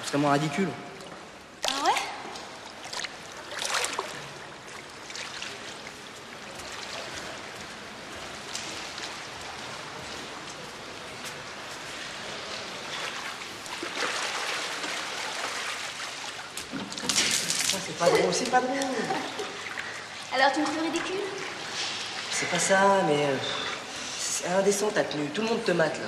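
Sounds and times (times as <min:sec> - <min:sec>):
pool water splashing: 0:00.0 - 0:26.0.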